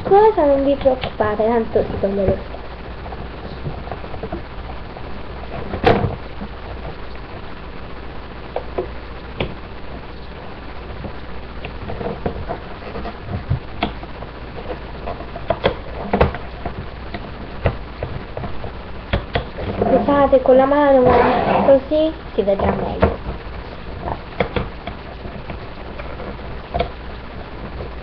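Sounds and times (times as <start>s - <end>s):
steady low hum: 0.0s - 28.0s
small clicks and taps: 11.0s - 19.8s, 24.0s - 28.0s.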